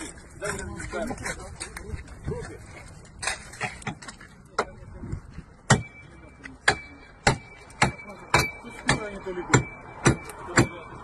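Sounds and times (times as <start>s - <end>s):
metal tool striking car bodywork: 5.7s - 6.0s, 6.6s - 11.0s.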